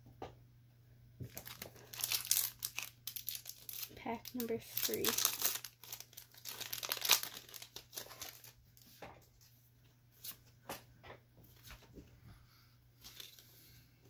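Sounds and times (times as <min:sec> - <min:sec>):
foil wrapper tearing and crinkling: 0:01.3 - 0:08.6.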